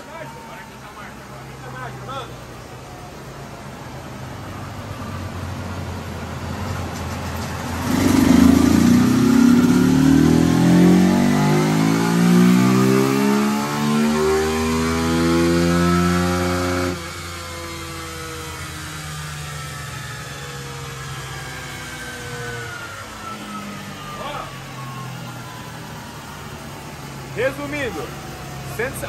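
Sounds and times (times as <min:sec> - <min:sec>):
motorcycle engine revving: 0:06.8 - 0:27.4.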